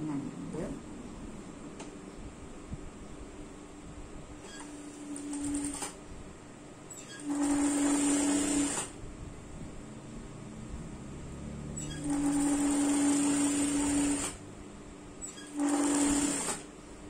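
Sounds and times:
sewing machine stitching: 4.4s - 6.0s, 7.0s - 9.0s, 11.8s - 14.4s, 15.3s - 16.7s.

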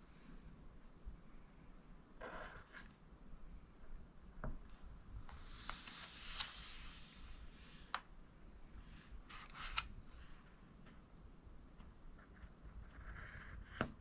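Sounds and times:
pencil scratching on paper: 2.2s - 3.0s, 12.2s - 14.0s.

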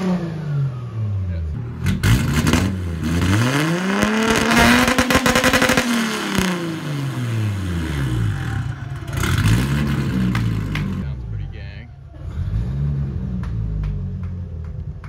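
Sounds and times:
car engine revving to limiter: 0.0s - 11.4s, 12.2s - 15.0s.

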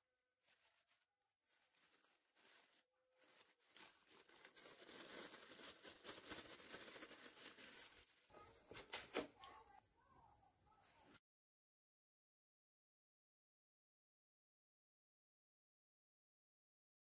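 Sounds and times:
plastic bag crinkling: 0.4s - 9.4s
sharp plastic crackle: 0.4s - 9.5s.

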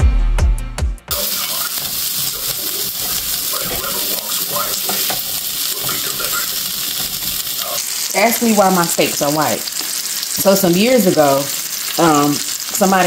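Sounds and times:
steaks sizzling in a pan: 1.1s - 13.0s.

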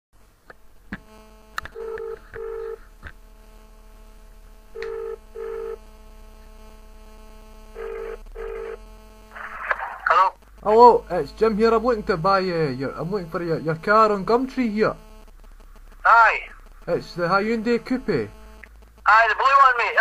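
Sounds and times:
faint line hum: 0.2s - 20.0s
telephone ringing tone: 1.7s - 2.8s, 4.7s - 5.8s, 7.7s - 8.8s.

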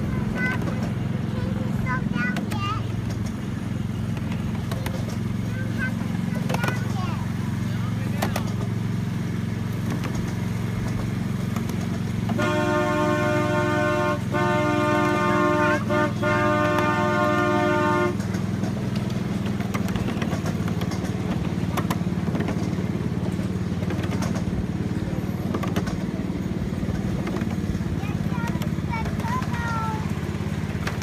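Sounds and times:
small locomotive running: 0.0s - 31.0s
train horn chord: 12.3s - 18.4s.

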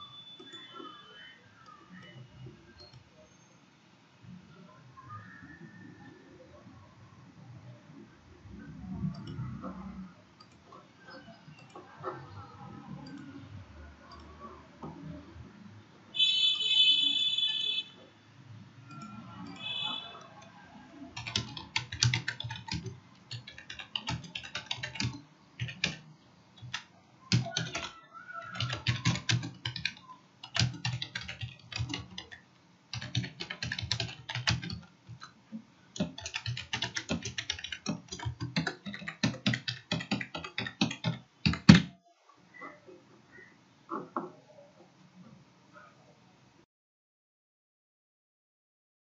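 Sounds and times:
computer keyboard typing: 18.9s - 42.0s.

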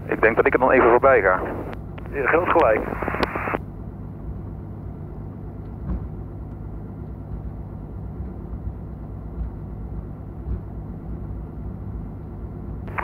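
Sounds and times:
propeller aircraft engine drone: 0.0s - 13.0s
faint clicks: 1.6s - 3.6s.

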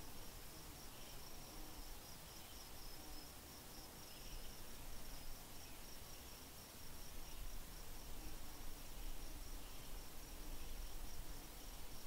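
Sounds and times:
insect chirping trill: 0.0s - 12.0s.

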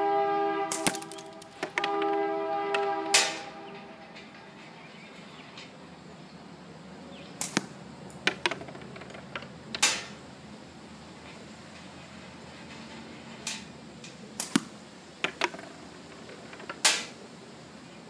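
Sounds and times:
steel balls hitting wooden box: 0.7s - 4.4s, 7.4s - 10.2s, 14.4s - 17.2s.

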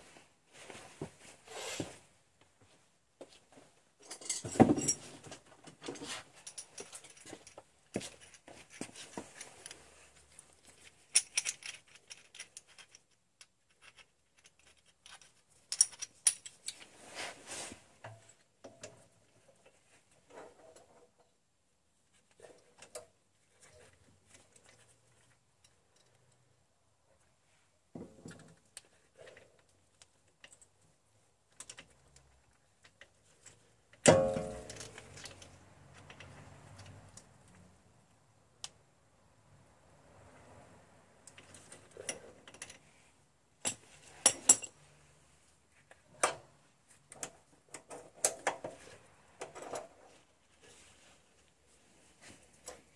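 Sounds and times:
metal clicks and clinks: 10.6s - 16.8s, 34.0s - 37.6s.

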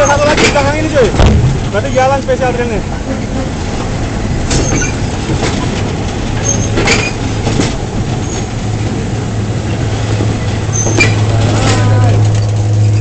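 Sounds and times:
faint wheel squeaks: 0.0s - 1.0s, 1.7s - 2.6s, 4.5s - 7.3s, 8.1s - 8.6s, 9.6s - 13.0s
train carriages rumbling past: 0.0s - 13.0s
wheels clacking on rails: 0.0s - 13.0s.

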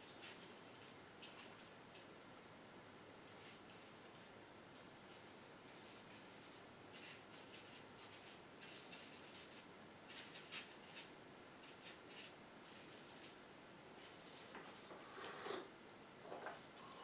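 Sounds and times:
paintbrush strokes on canvas: 5.0s - 13.4s.

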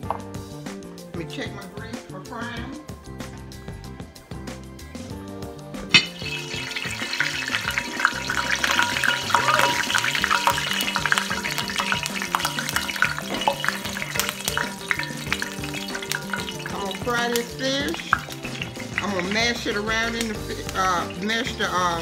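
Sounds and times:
background music: 0.0s - 22.0s
oil sizzling and crackling: 3.0s - 22.0s
sharp clack: 5.8s - 16.6s.

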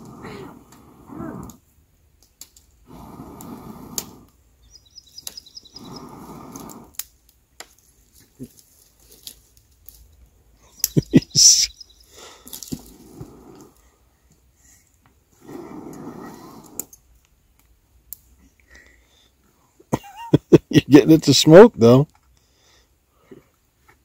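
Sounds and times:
person blowing on tinder: 0.0s - 1.6s, 2.8s - 4.4s, 5.6s - 7.0s, 10.9s - 13.8s, 15.4s - 16.9s
faint bird chirps: 4.6s - 6.8s, 10.7s - 12.4s.

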